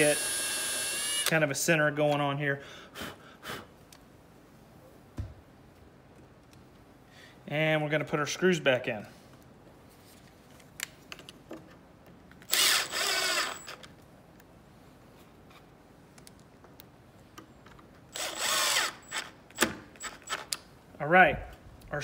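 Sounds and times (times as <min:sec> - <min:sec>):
cordless drill motor whir: 0:00.0 - 0:01.3, 0:12.5 - 0:13.8, 0:18.1 - 0:19.4.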